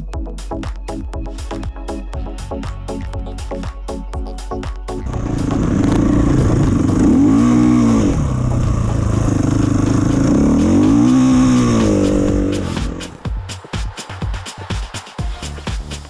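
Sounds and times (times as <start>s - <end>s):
motorcycle engine revving: 5.0s - 13.2s.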